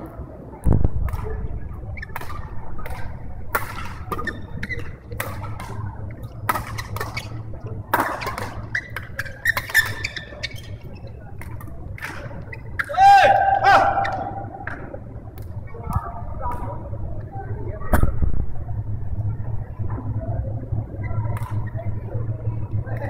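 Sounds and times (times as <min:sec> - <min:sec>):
steady low hum: 0:00.0 - 0:23.0
shoes squeaking on court floor: 0:04.0 - 0:05.5, 0:06.4 - 0:12.9.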